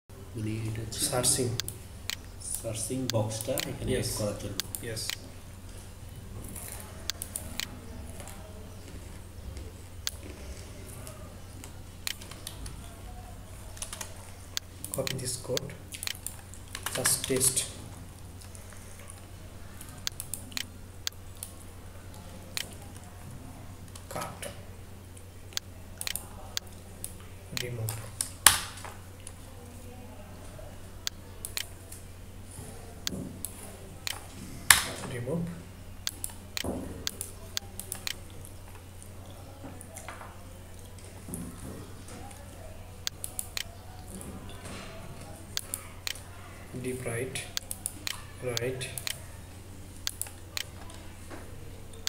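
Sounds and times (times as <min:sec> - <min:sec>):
low electrical hum: 0:00.1 - 0:52.0
computer mouse clicks: 0:06.6 - 0:08.4, 0:11.0 - 0:12.7, 0:13.7 - 0:17.7, 0:19.8 - 0:21.5, 0:31.0 - 0:32.0, 0:36.0 - 0:38.4, 0:43.0 - 0:43.8, 0:50.0 - 0:51.0.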